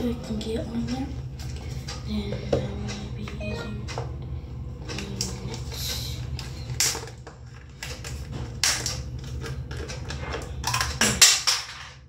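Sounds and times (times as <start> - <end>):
steady low hum: 0.0 - 11.1
plastic items clicking and rustling: 4.9 - 12.0.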